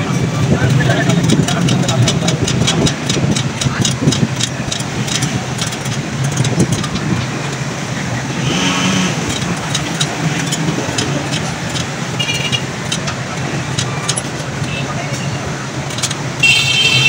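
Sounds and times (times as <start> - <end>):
street traffic hum: 0.0 - 17.0
metallic clicks of spoked wheel: 0.6 - 7.6, 9.2 - 15.2, 15.8 - 16.3.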